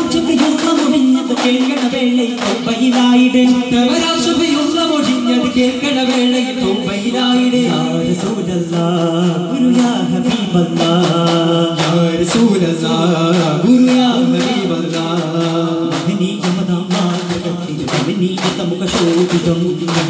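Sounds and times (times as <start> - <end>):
frame drums in quick rhythm: 0.0 - 20.0.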